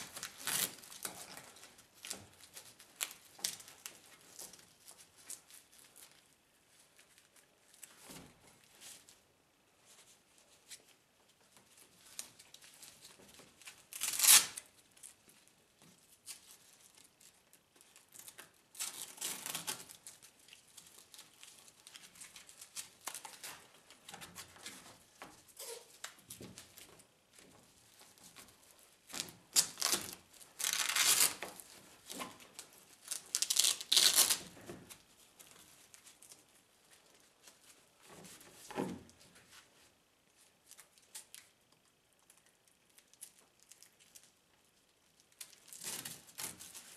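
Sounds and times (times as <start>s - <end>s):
velcro straps ripping: 0.0s - 2.2s, 13.9s - 14.7s, 29.1s - 32.3s, 33.0s - 34.7s.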